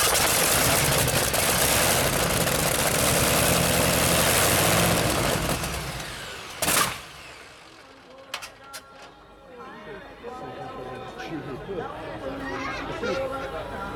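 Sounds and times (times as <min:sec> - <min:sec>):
radial engine running loudly: 0:00.0 - 0:08.1
engine bang: 0:00.0 - 0:08.6.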